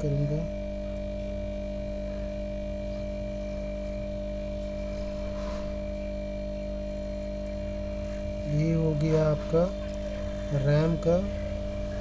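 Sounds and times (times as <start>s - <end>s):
constant electrical hum: 0.0s - 12.0s
hot air station blowing: 4.7s - 6.1s.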